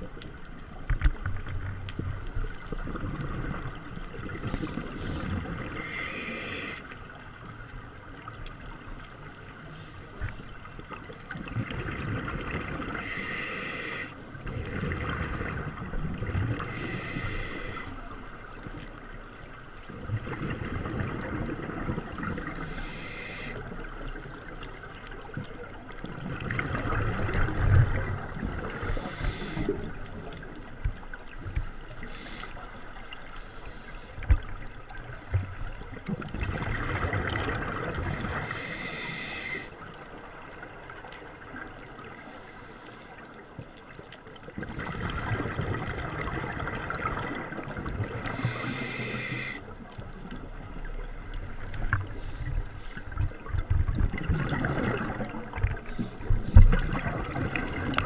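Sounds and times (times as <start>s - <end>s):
regulator hissing inhalations: 5.8s - 6.9s, 13.0s - 14.2s, 16.6s - 18.0s, 22.6s - 23.6s, 28.7s - 29.8s, 32.0s - 32.6s, 38.3s - 39.7s, 48.3s - 49.6s
exhaled bubbles rushing: 11.3s - 13.0s, 14.5s - 16.7s, 26.0s - 28.8s, 36.0s - 38.4s, 44.5s - 48.5s, 53.1s - 58.0s.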